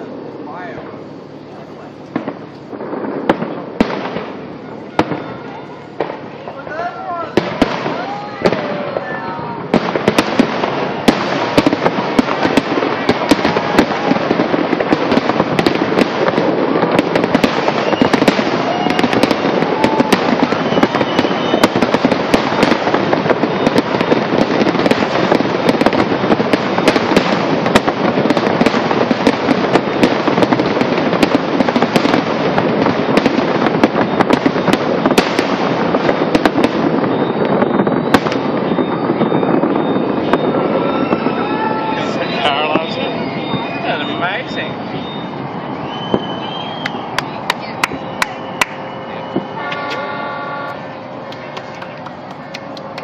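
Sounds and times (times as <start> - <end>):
fireworks crackling and banging: 0.0 - 53.0.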